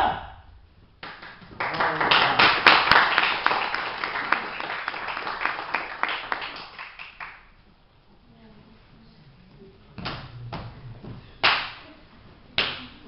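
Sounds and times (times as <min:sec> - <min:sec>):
small audience clapping: 0:01.0 - 0:07.7, 0:11.4 - 0:11.9, 0:12.6 - 0:13.0.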